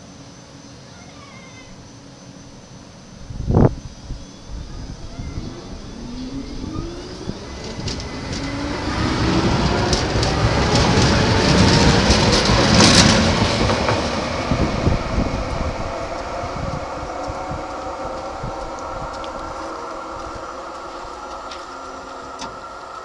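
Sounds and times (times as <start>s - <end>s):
tram motor whine: 2.0s - 23.0s
wheels clicking over rails: 5.4s - 23.0s.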